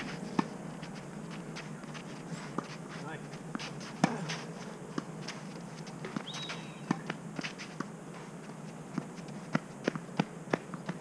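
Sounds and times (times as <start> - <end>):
tennis ball bouncing: 0.0 - 2.8, 3.5 - 7.9, 8.9 - 11.0
tennis racket hitting ball: 3.6 - 4.4.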